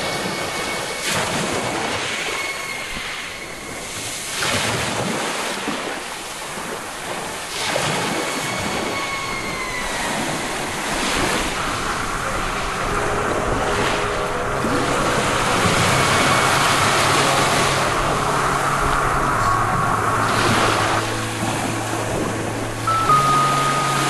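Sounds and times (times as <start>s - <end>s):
loud rushing noise: 10.7s - 24.0s.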